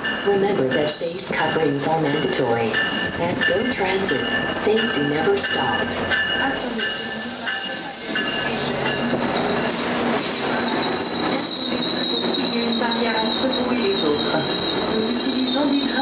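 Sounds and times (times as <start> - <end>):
train wheels rolling: 0.0 - 16.0
high steady squeal: 10.4 - 16.0.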